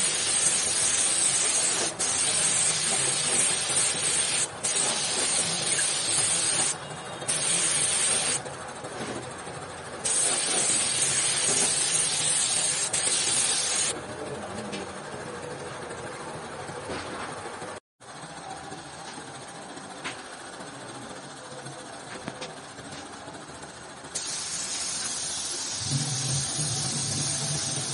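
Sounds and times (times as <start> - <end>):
spray gun hissing: 0.0 - 8.4, 10.1 - 13.9.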